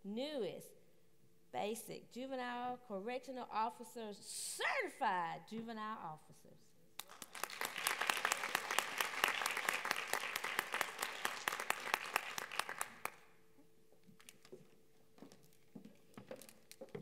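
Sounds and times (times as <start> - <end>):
audience applauding: 7.0 - 13.3.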